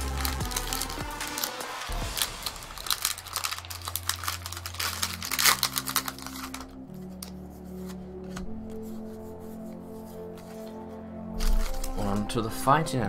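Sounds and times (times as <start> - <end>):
foil wrapper crinkling: 0.0 - 7.9, 11.4 - 12.4
background music with held chords: 0.0 - 13.0.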